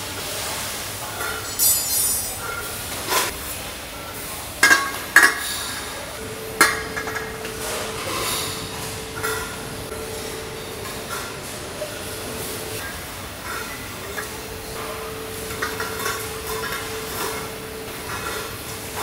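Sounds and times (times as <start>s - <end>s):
steady machine hum: 2.2s - 19.0s
metal bottles clanking: 13.5s - 18.6s.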